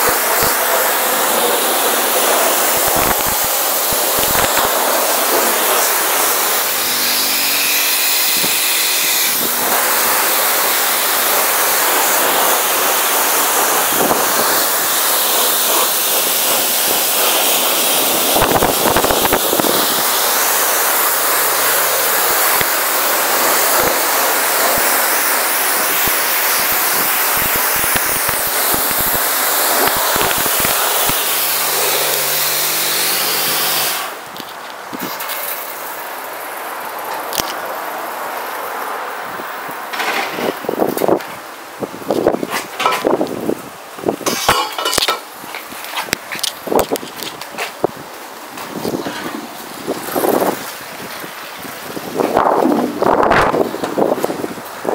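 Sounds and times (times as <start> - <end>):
pressure washer spray hissing: 0.0 - 34.3, 47.5 - 54.9.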